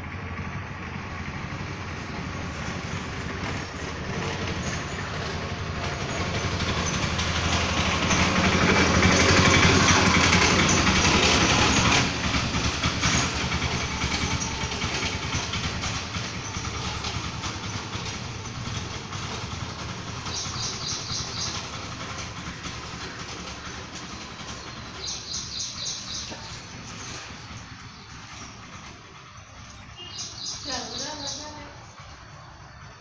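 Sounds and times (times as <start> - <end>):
passing vehicle engine: 0.0 - 33.0
bird chirping: 20.1 - 22.1, 23.0 - 32.1.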